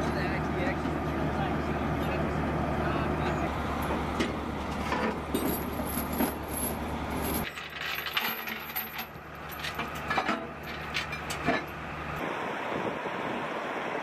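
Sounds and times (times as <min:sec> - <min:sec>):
low engine hum: 0:00.0 - 0:14.0
steel chains clinking and rattling: 0:04.7 - 0:11.8.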